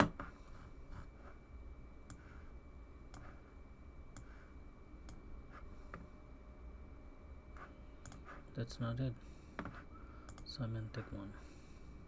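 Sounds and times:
faint steady electronic tone: 0.0 - 12.0
computer mouse clicking: 8.0 - 8.4, 10.3 - 10.5.

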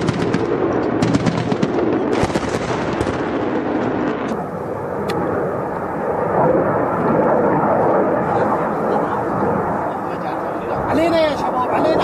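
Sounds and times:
machine-gun fire: 0.0 - 4.1
fighter jet roaring overhead: 0.0 - 12.0.

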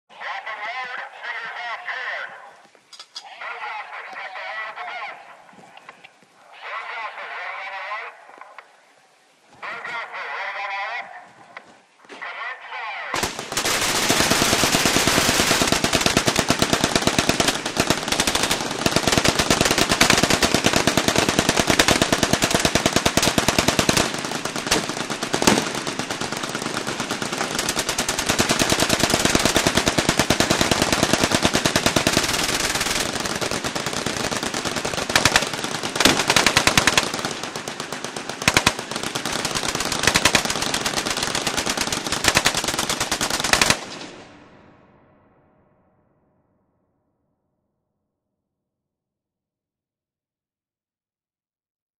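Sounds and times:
machine guns firing: 13.2 - 44.4.

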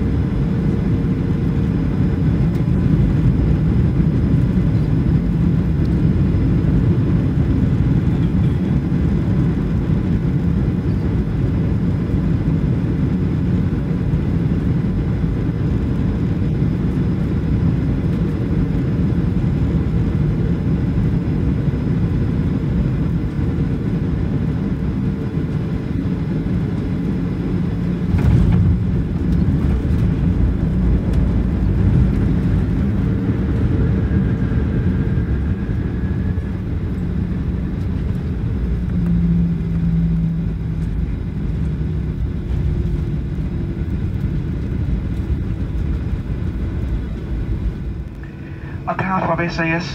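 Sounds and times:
jet engine and airflow roar: 0.0 - 49.9
runway rumble: 22.9 - 49.9.

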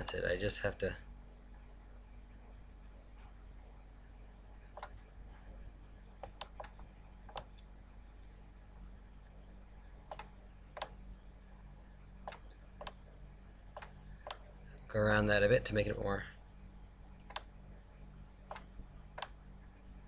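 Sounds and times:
faint low hum: 0.0 - 20.0
mouse and keyboard clicks: 4.7 - 5.0, 6.2 - 7.7, 10.1 - 11.0, 13.7 - 14.5, 17.2 - 17.5.

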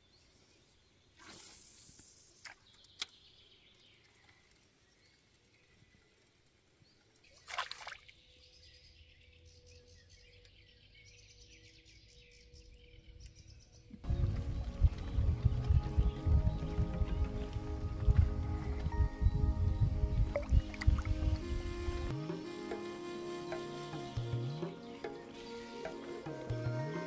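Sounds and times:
faint outdoor ambience: 0.0 - 27.0.

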